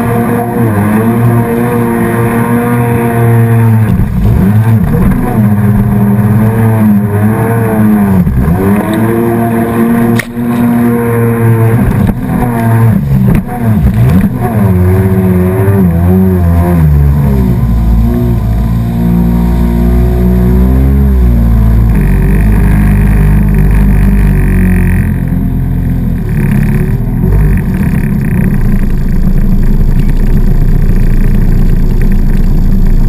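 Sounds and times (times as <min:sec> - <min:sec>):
jet ski engine running hard: 0:00.0 - 0:33.0.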